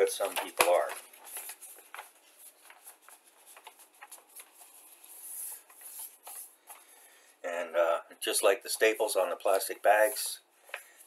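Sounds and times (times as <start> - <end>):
paper rustling: 0.0 - 7.1.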